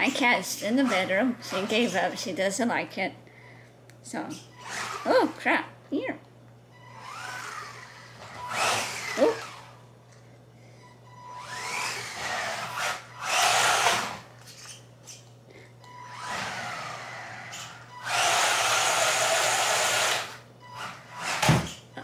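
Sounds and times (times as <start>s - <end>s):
rc truck electric motor whining: 4.5s - 5.2s, 6.8s - 9.8s, 11.3s - 14.8s, 16.0s - 21.8s.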